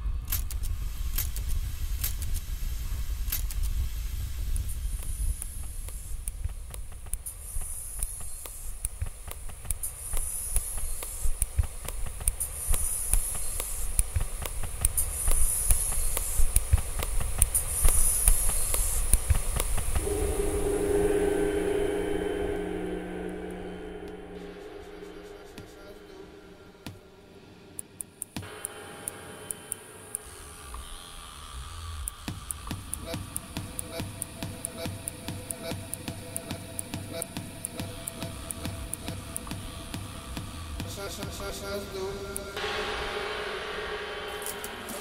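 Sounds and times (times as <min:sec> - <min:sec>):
low rumble: 0:20.0 - 0:27.6, 0:42.6 - 0:45.0.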